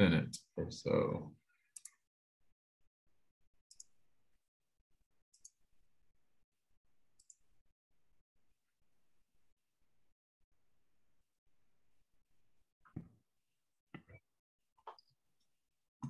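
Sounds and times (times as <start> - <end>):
soft high clicks: 7.2 - 7.4.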